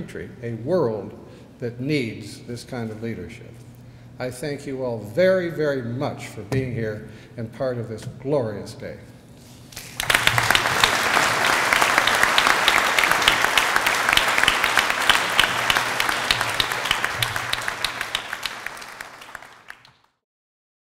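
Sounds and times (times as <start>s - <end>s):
audience applauding: 9.8s - 20.1s.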